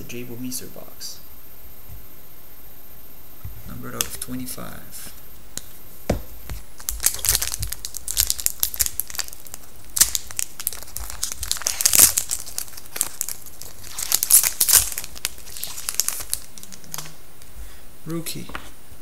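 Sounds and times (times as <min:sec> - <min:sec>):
foil wrapper crinkling and tearing: 0:06.5 - 0:17.2.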